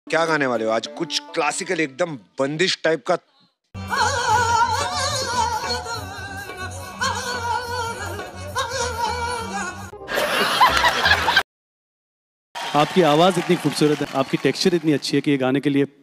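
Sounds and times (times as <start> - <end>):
woman singing: 3.8 - 10.0
loud laughter: 10.1 - 11.4.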